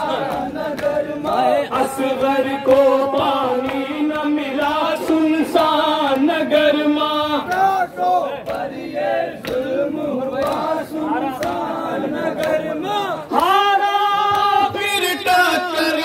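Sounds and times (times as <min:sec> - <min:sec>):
man singing a lament: 0:00.0 - 0:08.0, 0:12.7 - 0:16.0
men chanting in unison: 0:00.0 - 0:16.0.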